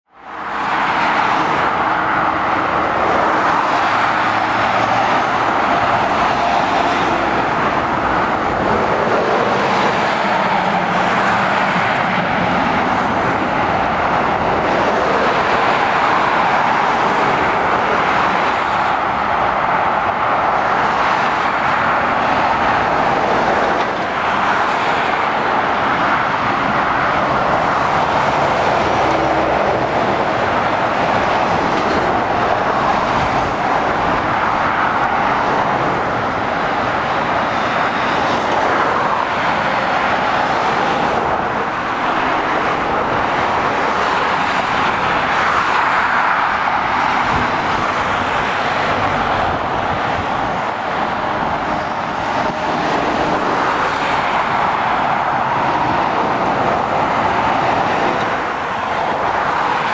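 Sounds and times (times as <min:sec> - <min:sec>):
road traffic rushing: 0:00.0 - 0:59.9.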